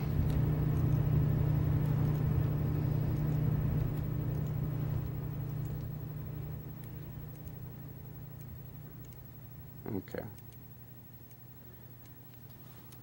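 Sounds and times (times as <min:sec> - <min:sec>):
low hum: 0:00.0 - 0:13.0
faint clicks: 0:03.1 - 0:06.0.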